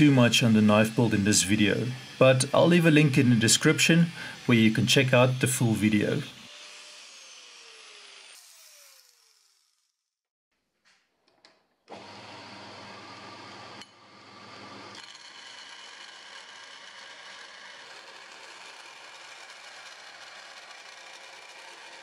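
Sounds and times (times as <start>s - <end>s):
belt grinder grinding steel: 0.0s - 10.0s, 14.8s - 22.0s.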